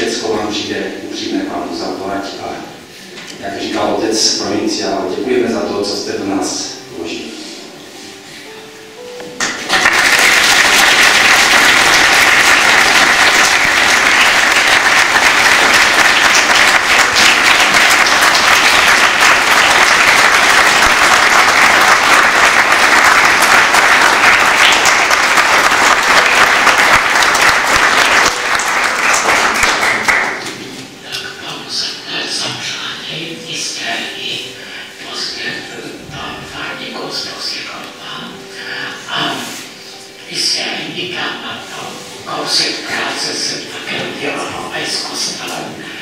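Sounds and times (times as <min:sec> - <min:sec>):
crowd applauding: 0:09.4 - 0:30.6.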